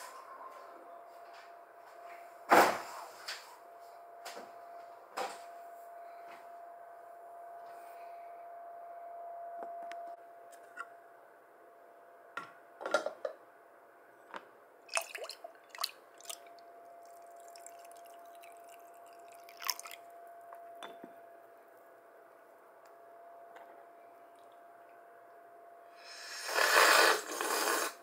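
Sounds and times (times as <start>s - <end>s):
faint hum: 0.0s - 28.0s
coffee pouring into a cup: 14.9s - 20.0s.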